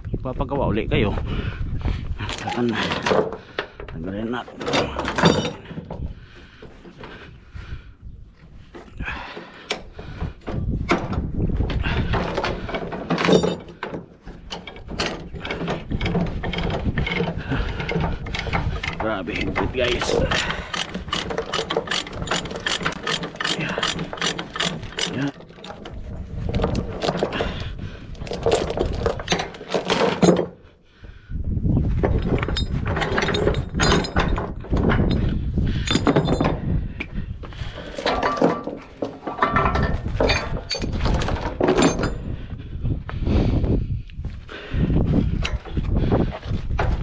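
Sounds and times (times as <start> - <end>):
steel chains clinking and rattling: 2.2 - 7.0, 8.7 - 30.7, 32.0 - 36.9, 37.5 - 42.5.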